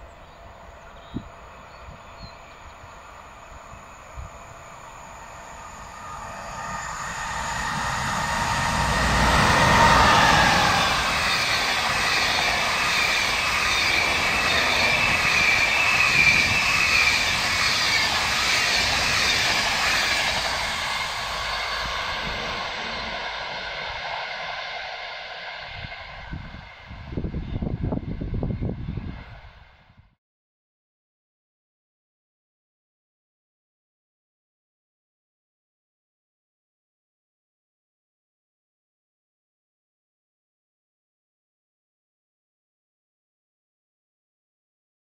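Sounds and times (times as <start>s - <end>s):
electric locomotive whine: 0.0s - 30.2s
train carriages rolling on rails: 0.1s - 26.5s.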